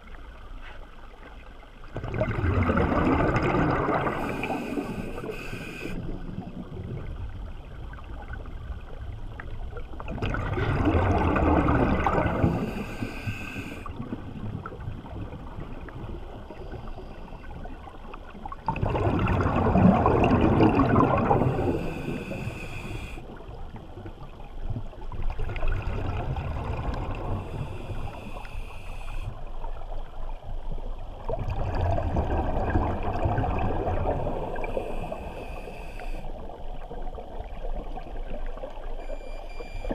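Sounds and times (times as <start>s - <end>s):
rush of water: 1.9s - 7.3s, 9.9s - 17.2s, 18.4s - 23.4s, 31.1s - 36.2s
diver breathing through regulator: 4.0s - 6.0s, 12.3s - 13.9s, 21.2s - 23.3s, 27.4s - 29.4s, 34.4s - 36.3s.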